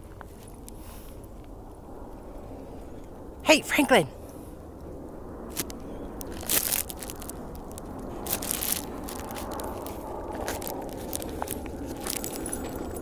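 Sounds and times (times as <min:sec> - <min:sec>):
footsteps crunching on straw: 0:05.5 - 0:13.0.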